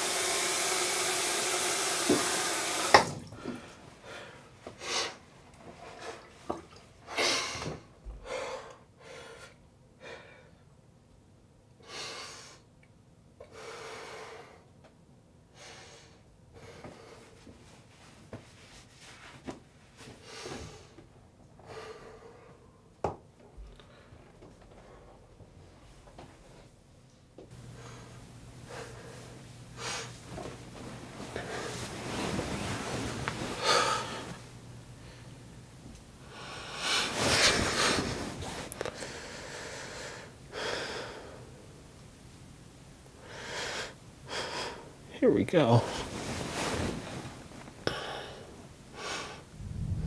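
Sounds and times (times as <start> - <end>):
tap water running into sink: 0.0 - 3.6
tap shutting off click: 2.0 - 3.2
man breathing hard: 7.1 - 10.6, 21.6 - 22.8, 33.6 - 34.4, 38.8 - 41.6, 47.8 - 49.6.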